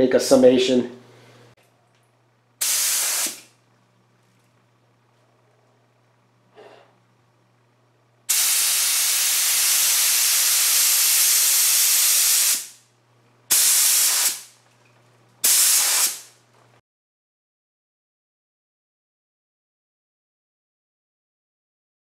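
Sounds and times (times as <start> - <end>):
spray gun hissing: 2.6 - 3.5, 8.3 - 12.8, 13.5 - 14.5, 15.4 - 16.3.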